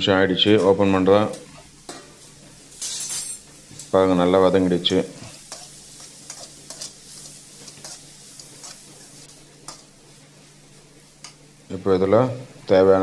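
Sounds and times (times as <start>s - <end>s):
soft sizzle: 0.0s - 13.0s
spoon scraping a pan: 1.9s - 3.5s, 5.2s - 10.0s.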